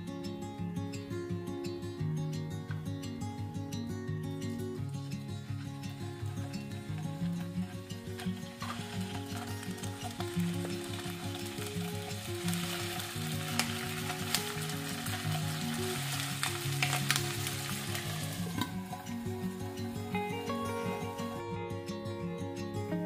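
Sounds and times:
soft background music: 0.0s - 23.0s
oil popping: 6.3s - 21.0s
chicken sizzling in hot oil: 6.4s - 21.4s.

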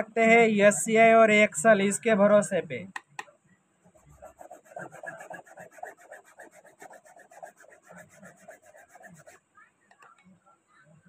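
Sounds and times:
toothbrush scrubbing cloth: 4.0s - 9.4s.

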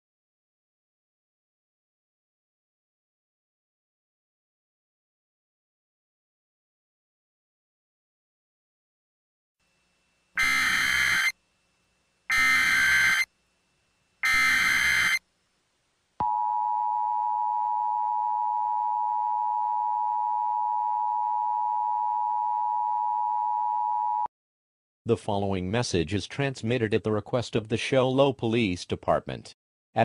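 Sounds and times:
two-tone attention signal: 10.4s - 11.3s, 12.3s - 13.3s, 14.2s - 15.2s
short data bursts: 10.4s - 11.4s, 12.3s - 13.3s, 14.2s - 15.2s.

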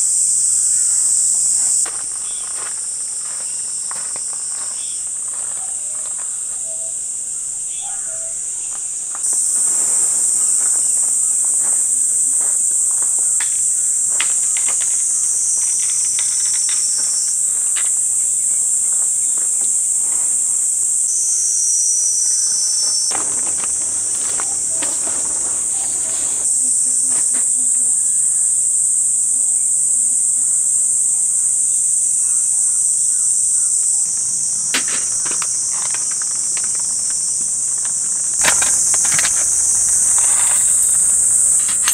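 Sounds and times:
insects chorus: 0.0s - 41.9s.

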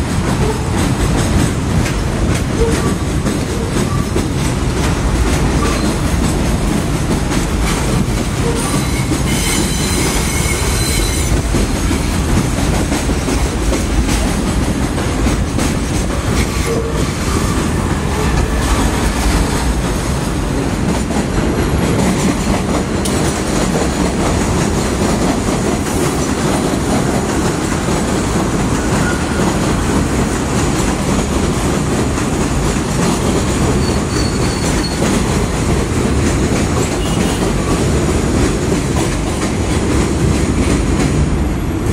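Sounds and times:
train wheels rumbling on rails: 0.0s - 41.9s
high wheel squeals: 8.5s - 11.4s, 33.7s - 35.1s.

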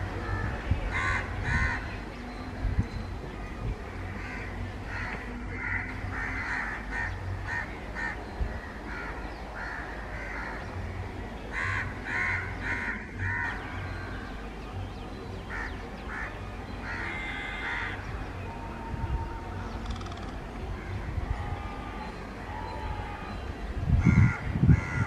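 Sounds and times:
crows cawing: 4.1s - 8.2s, 8.9s - 10.7s, 11.5s - 13.7s, 15.5s - 18.1s, 24.0s - 25.0s.

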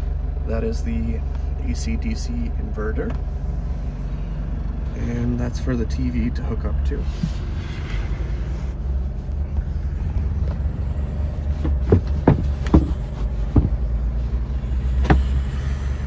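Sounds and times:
engine idling: 0.0s - 16.0s
sharp knocks and taps: 11.6s - 13.8s, 15.0s - 15.4s.

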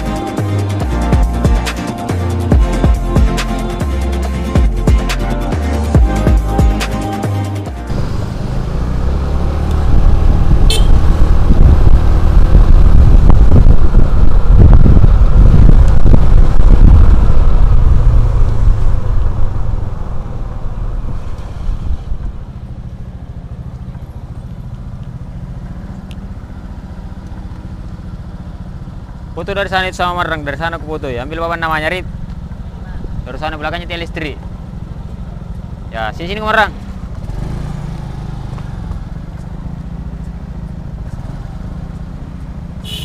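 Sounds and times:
motor scooter engine: 7.9s - 11.4s, 21.8s - 29.4s, 34.4s - 35.9s, 36.8s - 43.0s
wind noise on microphone: 7.9s - 22.7s.

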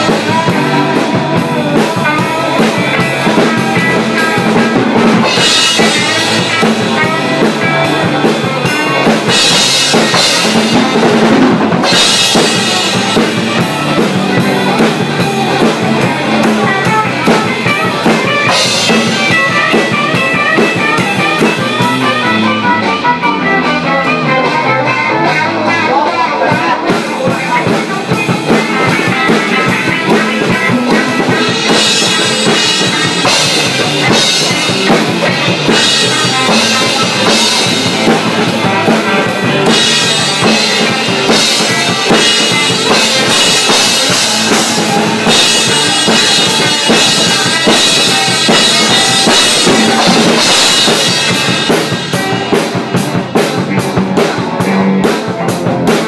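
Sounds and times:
drum kit with cymbal crashes: 0.0s - 56.0s
electric bass: 0.0s - 56.0s
electric guitars: 0.0s - 56.0s.

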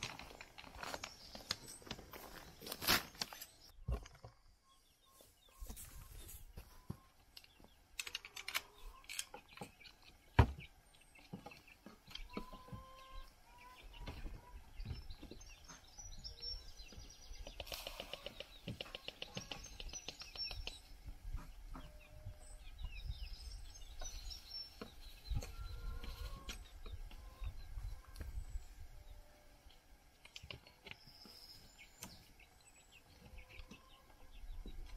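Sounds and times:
small birds chirping: 0.0s - 34.9s
wooden door knocks and clunks: 10.4s - 10.7s.

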